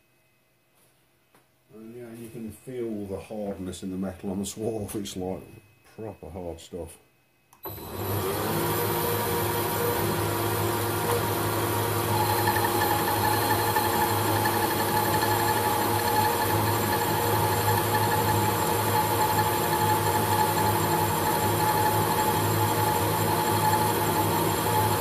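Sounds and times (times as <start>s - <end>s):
high cutting tone: 7.5s - 25.0s
metal lathe humming: 7.6s - 25.0s.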